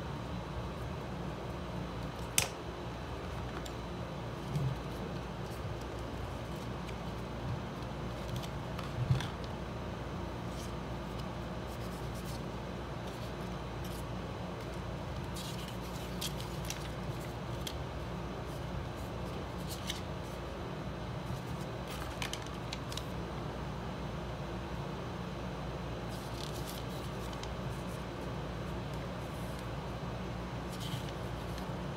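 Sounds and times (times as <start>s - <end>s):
steady low hum: 0.0s - 31.9s
paper packaging rustling: 14.6s - 17.8s, 21.3s - 23.2s, 26.1s - 28.0s, 30.7s - 31.8s.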